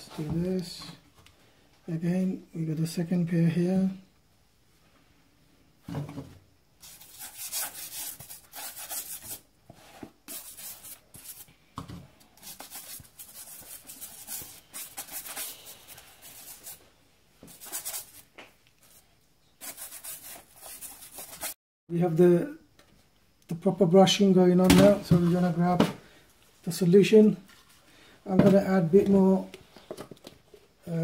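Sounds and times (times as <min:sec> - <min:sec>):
toothbrush scrubbing shoe: 0:06.8 - 0:09.4, 0:12.4 - 0:16.8, 0:17.5 - 0:18.2, 0:19.6 - 0:21.6.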